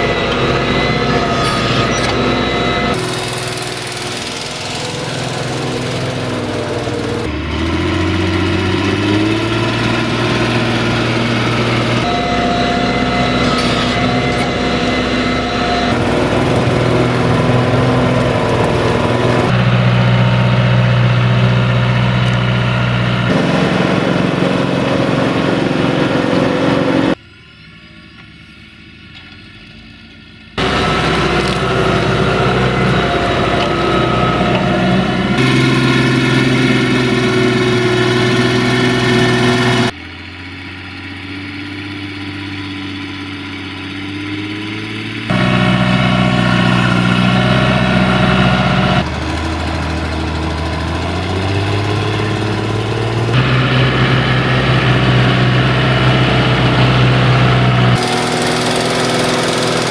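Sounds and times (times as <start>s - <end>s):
tractor diesel engines under load: 0.0s - 59.9s.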